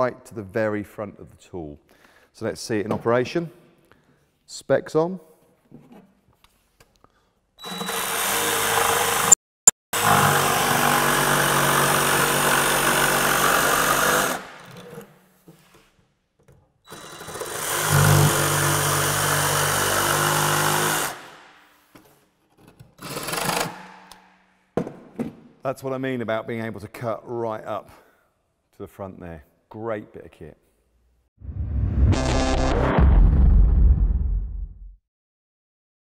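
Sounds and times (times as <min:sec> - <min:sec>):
jigsaw cutting chipboard: 0:07.7 - 0:09.4, 0:10.0 - 0:15.0, 0:16.9 - 0:21.3.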